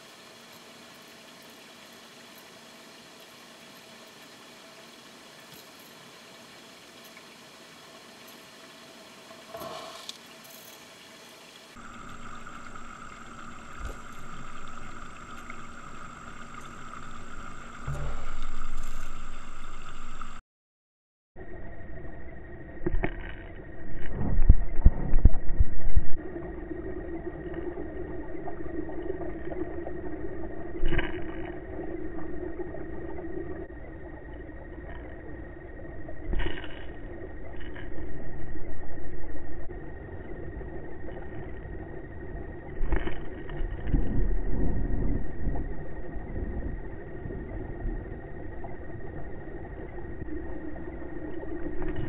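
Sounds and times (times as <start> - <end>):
underwater hum and rumble: 0.0 - 20.4, 21.4 - 52.0
thin high whine: 11.8 - 20.4.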